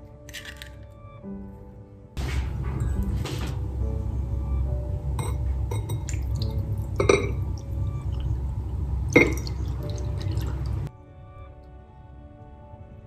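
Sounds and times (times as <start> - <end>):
glass and crockery clinking: 5.2 - 6.2, 7.0 - 7.4, 9.2 - 9.5
liquid pouring into a bowl: 9.1 - 10.9.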